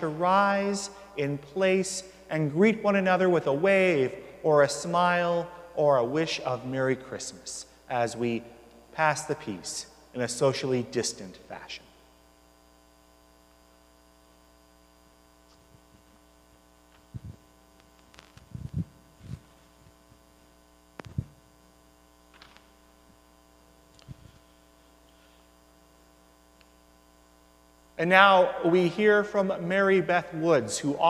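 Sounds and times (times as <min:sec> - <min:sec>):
electrical mains hum: 0:00.0 - 0:31.0
footsteps: 0:18.2 - 0:20.0.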